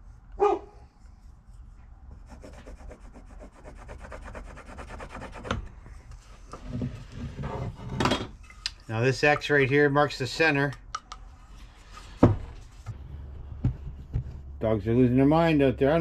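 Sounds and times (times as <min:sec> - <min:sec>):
pencil scratching on wood: 0:02.1 - 0:05.7.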